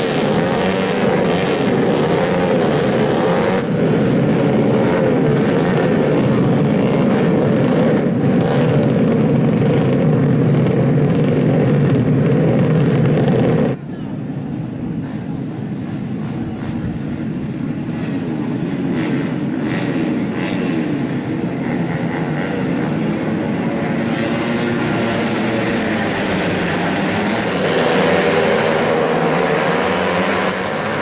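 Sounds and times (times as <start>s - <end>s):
motorcycle engines revving: 0.0s - 31.0s.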